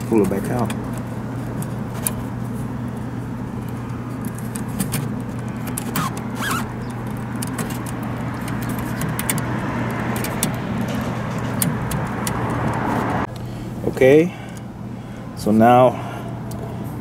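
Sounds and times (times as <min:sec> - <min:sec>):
steady low hum: 0:00.0 - 0:17.0
short squeak: 0:06.0 - 0:06.9.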